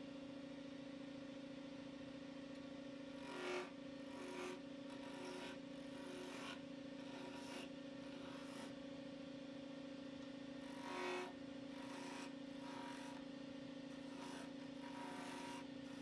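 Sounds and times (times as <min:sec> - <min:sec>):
turning tool scraping wood: 0:03.1 - 0:08.8, 0:10.6 - 0:13.2, 0:13.9 - 0:16.0
lathe motor humming: 0:10.6 - 0:13.2, 0:13.9 - 0:16.0.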